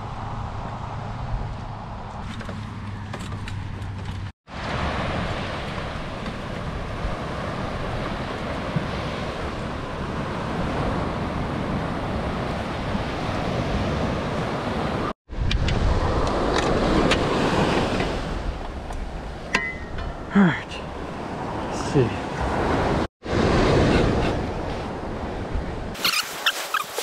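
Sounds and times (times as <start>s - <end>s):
surf breaking on beach: 4.5s - 15.1s
wind on microphone: 4.5s - 19.5s
metal rod holders knocking: 18.9s - 20.3s.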